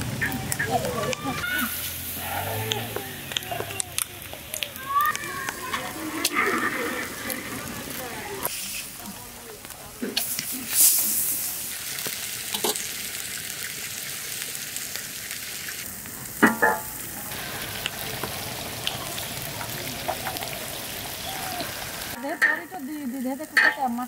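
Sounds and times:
charcoal fire hissing and crackling: 0.0 - 22.2
small pops: 2.6 - 6.6.

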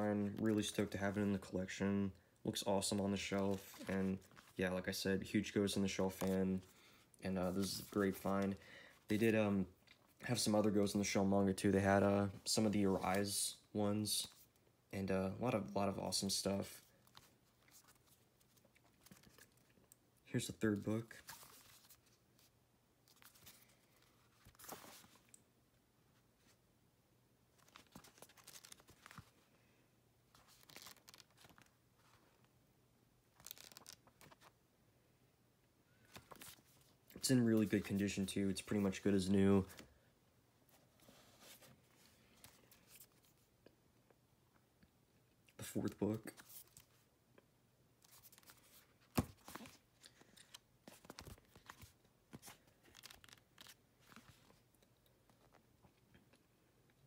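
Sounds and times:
book pages flipping: 3.4 - 4.6, 6.1 - 6.4, 17.0 - 20.0, 21.2 - 22.5, 23.1 - 25.4, 27.6 - 29.5, 30.3 - 32.5, 33.4 - 34.6, 36.0 - 37.0, 40.7 - 43.5, 45.9 - 47.0, 48.0 - 56.0.

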